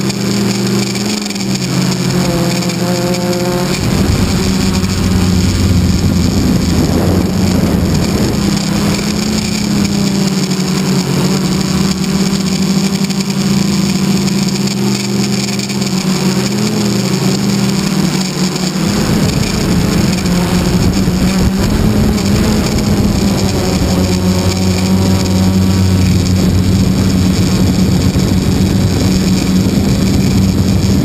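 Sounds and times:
model airplane motor and propeller: 0:00.0 - 0:31.0
wind rush: 0:00.6 - 0:13.1, 0:18.7 - 0:31.0.

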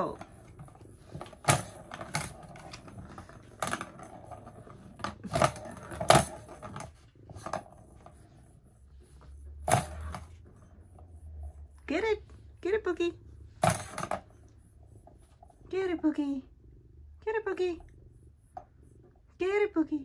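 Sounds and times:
plastic balls rolling and rattling: 0:00.0 - 0:08.4, 0:09.6 - 0:11.1, 0:13.5 - 0:15.6.

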